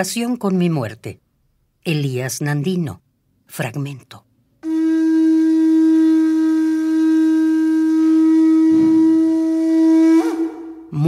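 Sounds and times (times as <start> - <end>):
wind instrument long note: 4.6 - 11.0.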